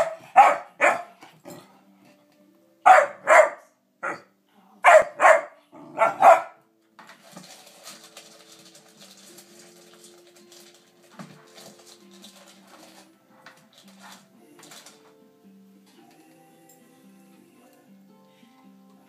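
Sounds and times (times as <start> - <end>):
dog barking: 0.0 - 1.2, 2.8 - 6.6
dog crunching kibble: 7.1 - 15.0.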